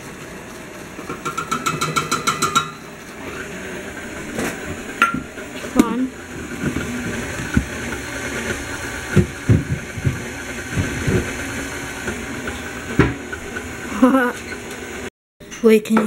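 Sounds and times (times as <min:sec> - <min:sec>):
stand mixer running: 0:00.0 - 0:15.1.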